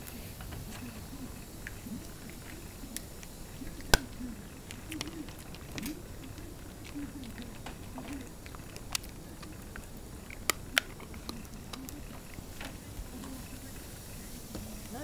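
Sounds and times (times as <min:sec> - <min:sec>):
dog crunching apple: 0:01.6 - 0:13.5.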